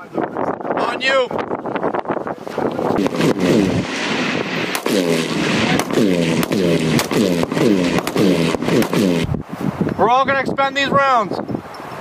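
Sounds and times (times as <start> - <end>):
rifle shots: 3.0 - 9.2.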